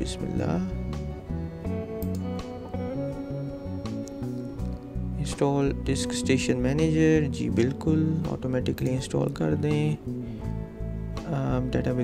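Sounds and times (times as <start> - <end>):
bass line: 0.0 - 12.0
plucked guitar music: 0.0 - 12.0.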